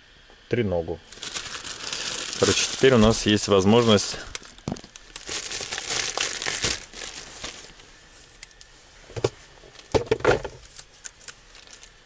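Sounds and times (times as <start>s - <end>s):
plastic packaging crinkling: 1.0s - 8.6s, 10.5s - 12.0s.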